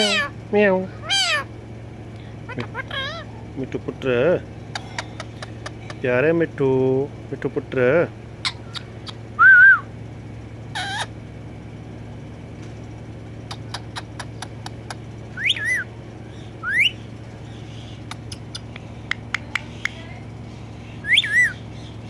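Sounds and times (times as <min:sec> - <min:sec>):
parakeet whistling: 0:00.0 - 0:00.3, 0:01.0 - 0:01.5, 0:02.6 - 0:03.3, 0:08.4 - 0:09.9, 0:10.7 - 0:11.1, 0:13.5 - 0:20.0, 0:20.8 - 0:21.9
parakeet sharp clicks: 0:04.7 - 0:06.0, 0:08.7 - 0:09.2, 0:13.4 - 0:15.0, 0:17.9 - 0:20.2.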